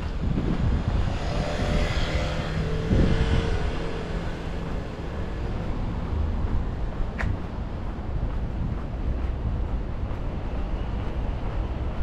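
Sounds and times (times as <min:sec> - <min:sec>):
wind on microphone: 0:00.0 - 0:12.0
vehicle engine passing: 0:00.9 - 0:06.3.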